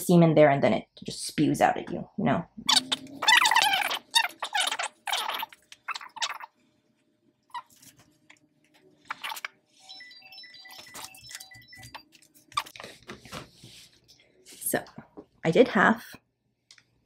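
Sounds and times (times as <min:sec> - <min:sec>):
short high repeating tones: 0:09.8 - 0:12.0.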